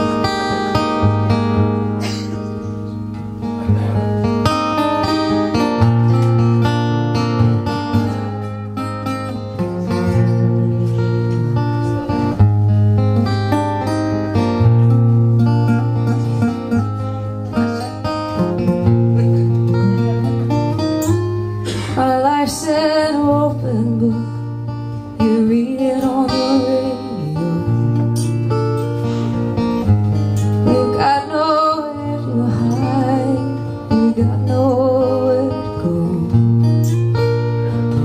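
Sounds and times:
acoustic guitars strummed and picked: 0.0 - 38.0
woman singing: 21.9 - 28.3, 30.6 - 37.8.

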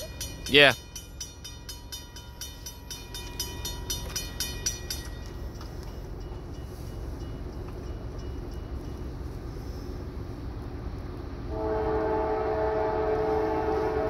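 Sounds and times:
railroad crossing bell ringing: 0.0 - 10.7
train rumble: 0.0 - 14.0.

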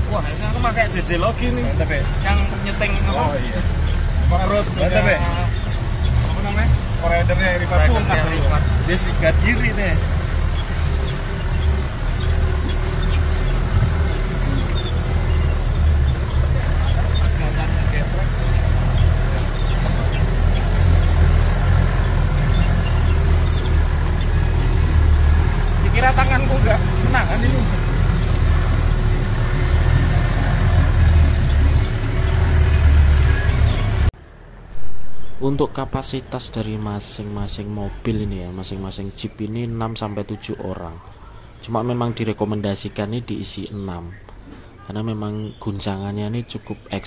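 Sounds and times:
off-road engine rumbling in mud: 0.0 - 34.2.

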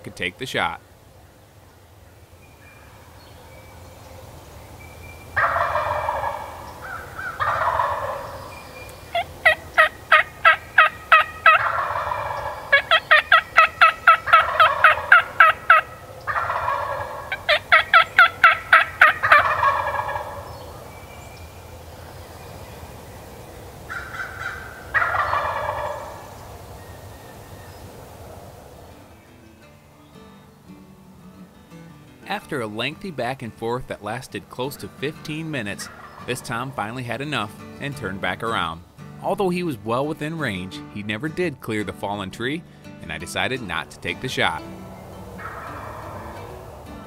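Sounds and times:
turkey gobbling: 0.6 - 29.2, 33.6 - 38.6, 43.0 - 47.0
turkey yelps: 5.3 - 21.8, 23.3 - 28.2, 35.8 - 36.5, 44.8 - 47.0.

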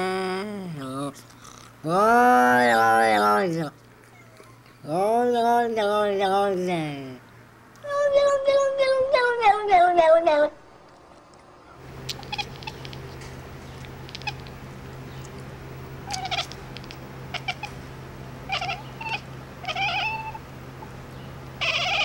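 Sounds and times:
steady low hum: 9.9 - 22.0
cat meowing: 12.1 - 13.1, 14.0 - 14.5, 16.0 - 17.8, 18.5 - 20.4, 21.6 - 22.0.

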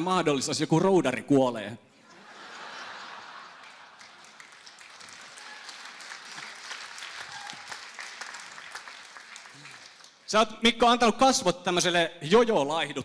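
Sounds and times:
audience applauding: 2.5 - 10.3.

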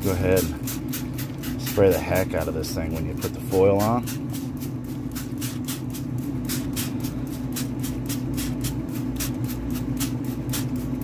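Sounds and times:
steady low hum: 0.0 - 11.0
spray bottle squirting: 4.1 - 11.0.

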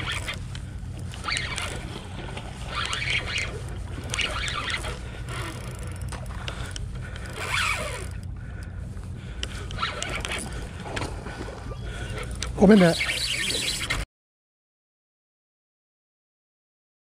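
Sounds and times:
spinning reel drag buzzing: 0.0 - 8.7, 9.4 - 10.9, 11.9 - 14.0
low rumble: 0.0 - 12.6.

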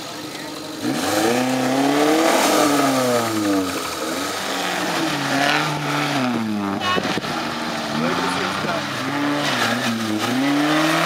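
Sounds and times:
engine revving: 0.0 - 11.0.

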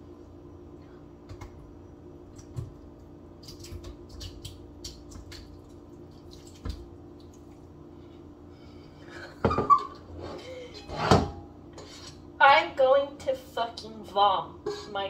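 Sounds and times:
wet drips and squishes: 2.3 - 7.8
small splats: 3.4 - 7.6.

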